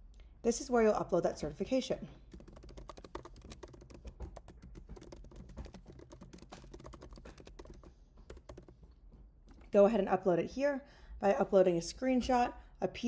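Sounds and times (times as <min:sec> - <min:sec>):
keyboard typing: 0:02.3 - 0:09.8.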